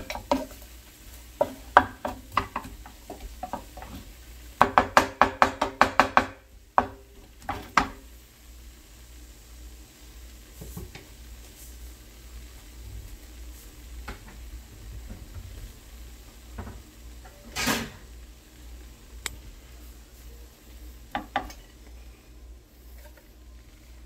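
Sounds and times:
dishes and cupboards knocking: 0:01.4 - 0:04.0, 0:04.6 - 0:08.0.

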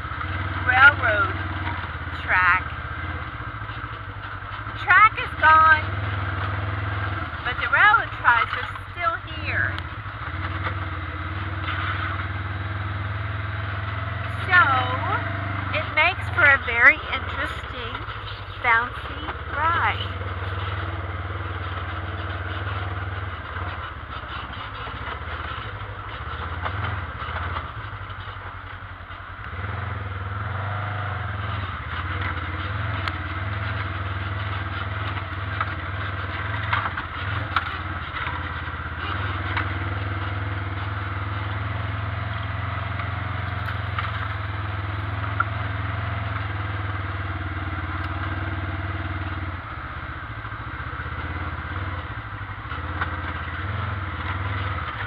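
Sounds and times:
atv engine running: 0:00.0 - 0:55.0
vehicle knocking and clattering: 0:15.8 - 0:30.7, 0:31.4 - 0:47.1, 0:49.3 - 0:55.0.

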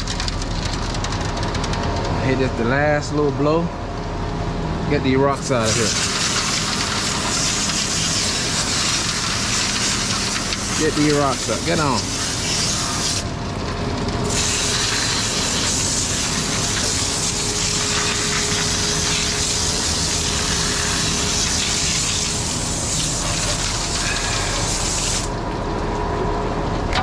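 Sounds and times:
water hose spraying: 0:05.6 - 0:13.2, 0:14.3 - 0:25.4.

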